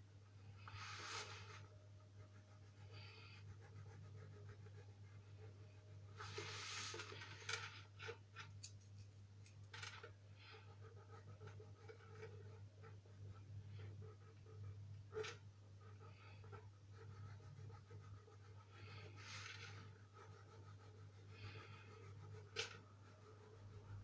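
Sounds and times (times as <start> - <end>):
pen scratching on paper: 0.8 - 8.2, 10.4 - 24.0.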